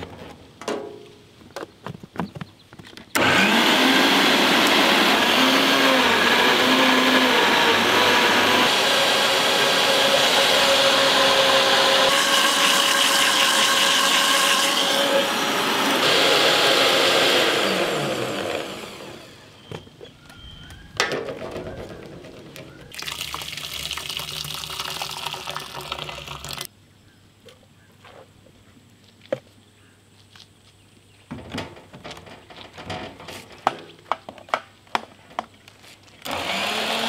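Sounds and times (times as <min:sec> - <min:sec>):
electric blender motor: 0:03.2 - 0:19.6, 0:36.2 - 0:37.0.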